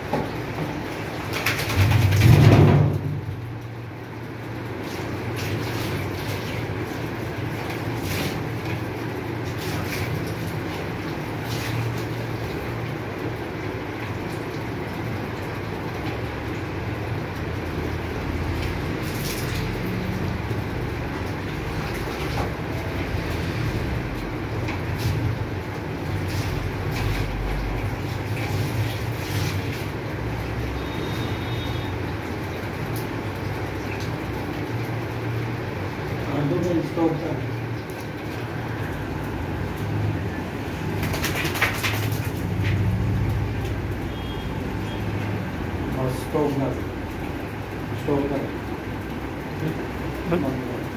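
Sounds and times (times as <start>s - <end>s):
water splashing into metal tub: 0.0s - 50.9s.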